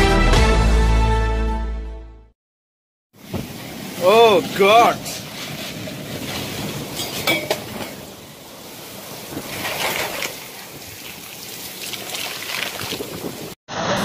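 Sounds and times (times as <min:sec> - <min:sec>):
heavy rain: 0:03.2 - 0:14.0
wind buffeting microphone: 0:05.6 - 0:11.1, 0:12.7 - 0:13.6.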